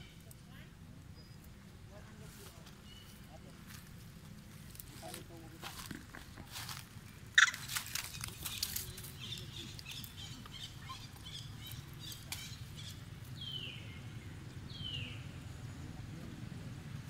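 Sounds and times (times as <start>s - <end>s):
light clicks and rustles: 7.5s - 10.6s.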